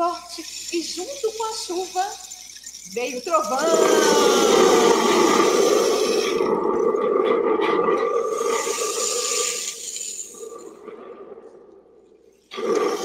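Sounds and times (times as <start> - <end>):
rain stick rushing hiss: 0.0 - 6.4, 8.4 - 10.6.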